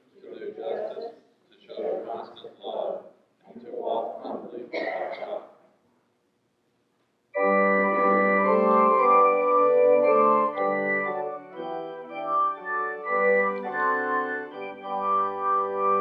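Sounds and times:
church organ chords: 0:07.4 - 0:16.0.

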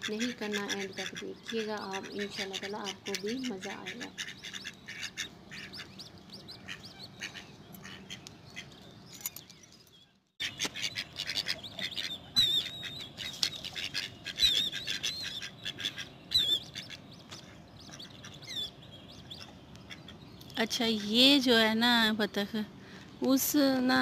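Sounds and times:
ducks quacking: 0:00.0 - 0:08.7, 0:10.4 - 0:20.2
high wavering chirps: 0:16.2 - 0:19.6.

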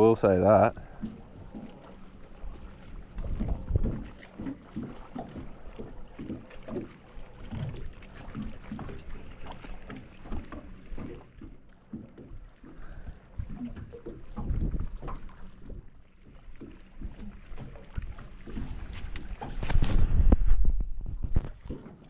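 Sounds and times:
boat rumbling and knocking: 0:00.0 - 0:22.0
wind buffeting microphone: 0:03.0 - 0:04.2, 0:13.0 - 0:15.9, 0:18.7 - 0:21.7.

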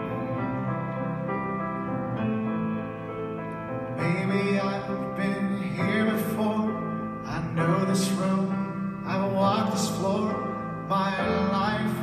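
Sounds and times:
upright piano chords: 0:00.0 - 0:12.0
man singing: 0:04.0 - 0:12.0.

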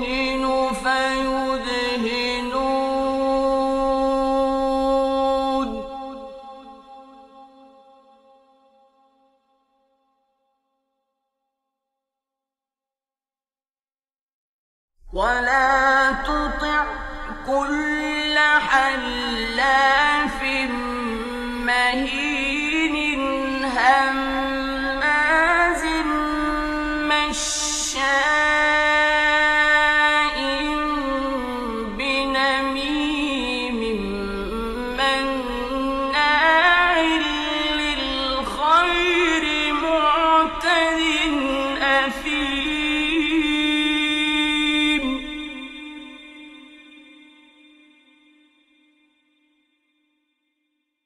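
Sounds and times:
man chanting: 0:00.0 - 0:08.2, 0:15.1 - 0:47.5.

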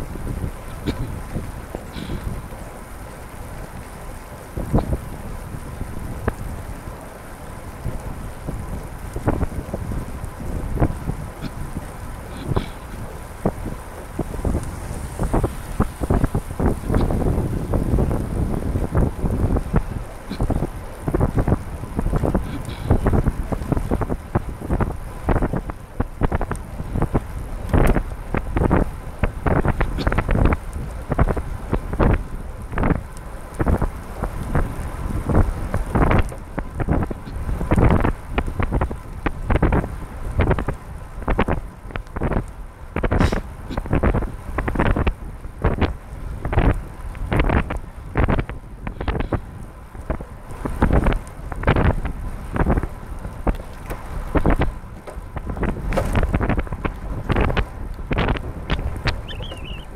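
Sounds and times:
trike rolling on wet road: 0:00.0 - 0:59.9
wind buffeting microphone: 0:00.0 - 0:59.9.

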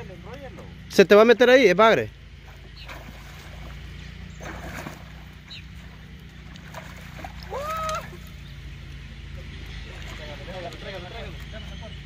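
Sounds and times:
fish splashing in water: 0:02.4 - 0:11.4
rising vocal cry: 0:07.4 - 0:08.2.

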